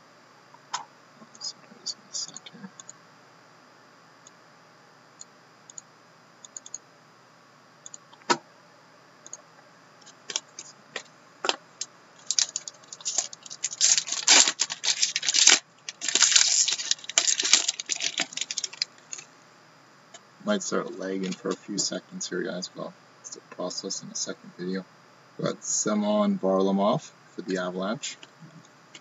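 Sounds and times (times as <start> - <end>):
plastic wrapping crinkling: 12.2 - 19.3.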